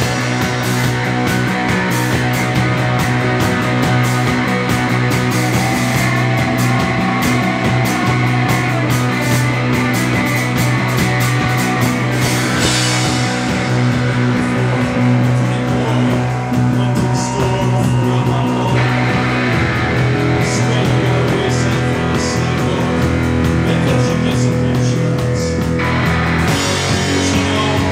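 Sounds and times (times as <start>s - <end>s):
rock band playing loudly: 0.0s - 27.9s.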